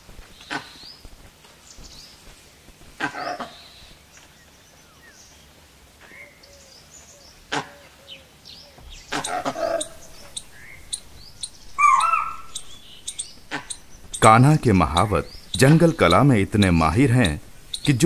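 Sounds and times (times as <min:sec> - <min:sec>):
small birds chirping: 0:00.0 - 0:18.0
tiger snarling: 0:09.1 - 0:18.0.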